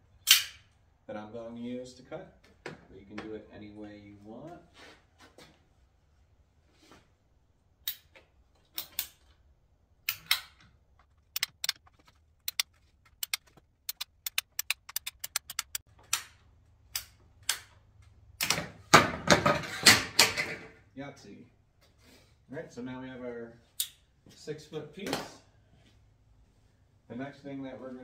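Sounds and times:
pipe cutter ratchet clicks: 11.3s - 11.9s, 13.2s - 16.2s.

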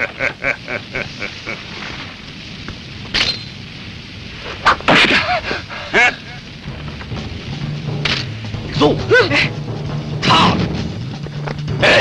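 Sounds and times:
monster cackling laugh: 0.0s - 2.0s, 4.7s - 6.6s.

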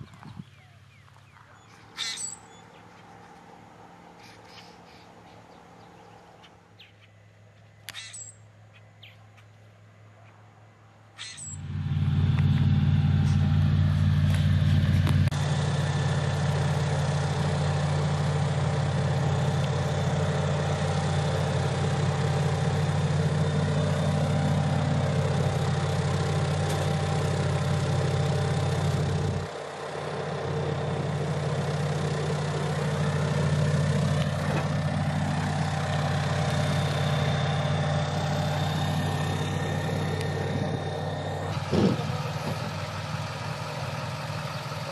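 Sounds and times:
airboat engine droning: 11.4s - 44.9s.

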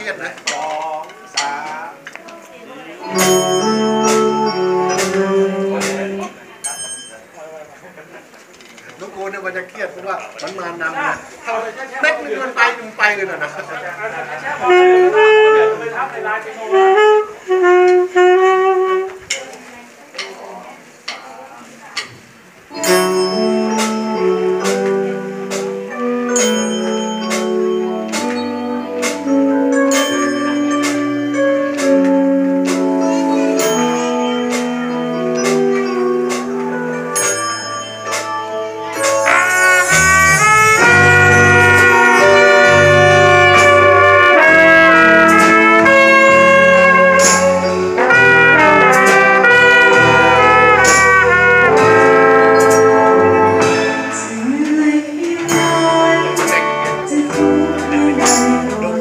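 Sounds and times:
alto saxophone: 3.0s - 6.5s, 13.7s - 19.6s, 22.7s - 59.0s
band playing chords over beat: 3.0s - 6.8s, 13.1s - 19.3s, 22.6s - 59.0s.

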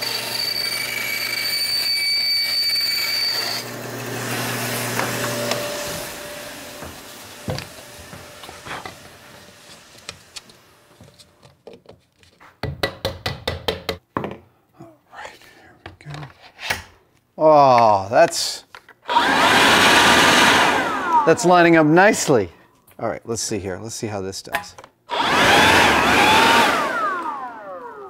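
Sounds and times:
band saw cutting plastic tube: 0.0s - 6.9s.

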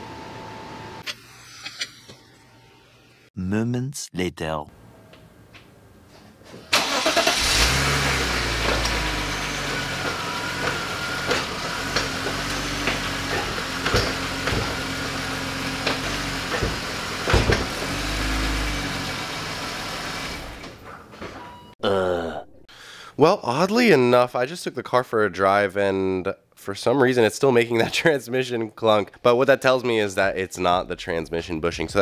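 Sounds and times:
car engine starting and revving: 6.7s - 20.8s.

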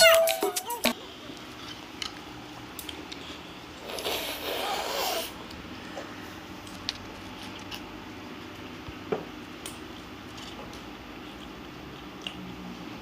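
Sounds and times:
child slurping and chewing: 3.8s - 5.4s.

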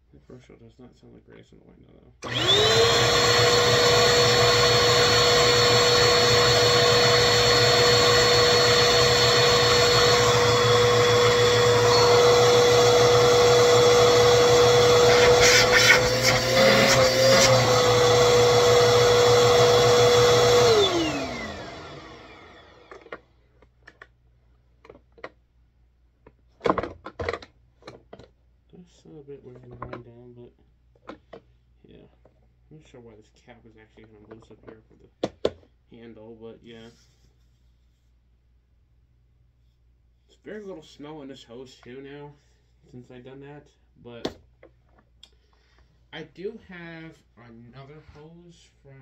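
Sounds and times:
vacuum cleaner motor whine: 2.2s - 23.2s.

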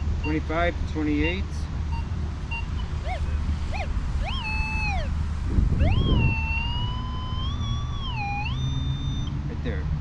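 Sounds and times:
metal detector tones: 0.0s - 3.2s, 3.8s - 5.1s, 5.8s - 9.3s
low steady rumble: 0.0s - 10.0s.

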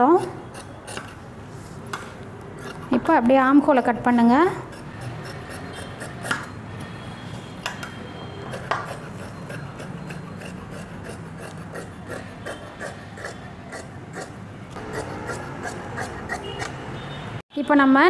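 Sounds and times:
scissors cutting cloth: 8.5s - 16.8s.

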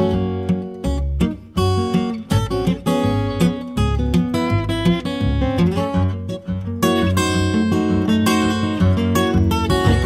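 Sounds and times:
acoustic guitar country tune: 0.0s - 10.0s
steady bass beat: 9.4s - 10.0s.

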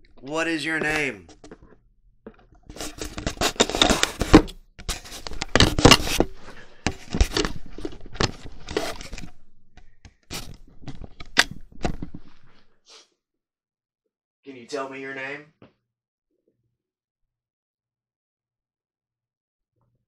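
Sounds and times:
camera handling scraping and rustling: 2.5s - 12.7s.

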